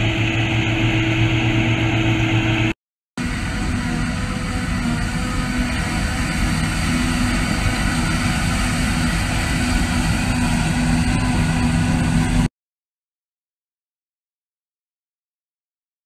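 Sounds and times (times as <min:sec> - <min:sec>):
heavy engine drone: 0:00.0 - 0:12.5.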